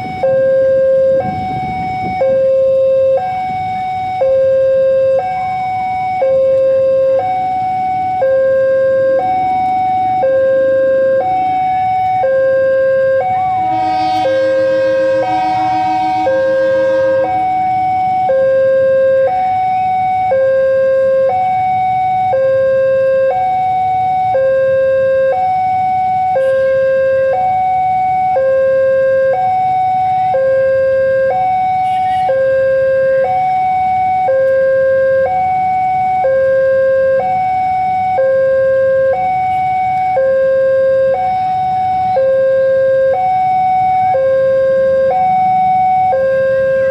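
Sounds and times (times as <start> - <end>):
two-tone crossing alarm: 0.0 - 46.9
train horn: 13.4 - 18.1.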